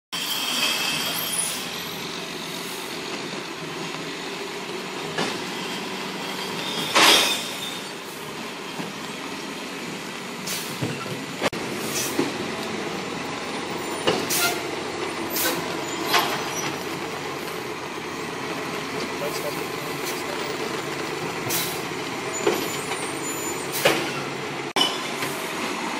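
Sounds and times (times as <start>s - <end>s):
air brakes hissing: 0.2s - 3.0s, 10.4s - 11.0s, 11.8s - 12.3s, 13.8s - 14.7s, 15.3s - 16.9s, 21.4s - 24.4s
traffic on wet street: 0.2s - 25.9s.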